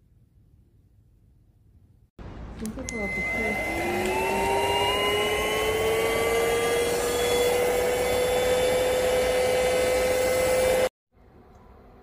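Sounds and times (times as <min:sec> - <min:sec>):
stick vacuum running: 0:02.8 - 0:10.9.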